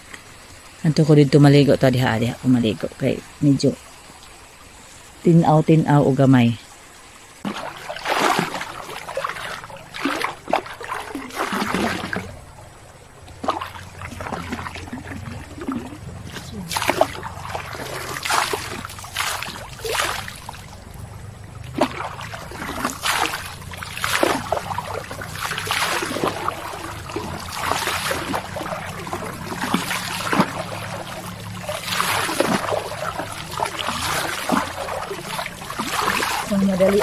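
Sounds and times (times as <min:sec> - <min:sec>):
water dripping: 0:00.0 - 0:37.0
water pouring and splashing: 0:06.0 - 0:37.0.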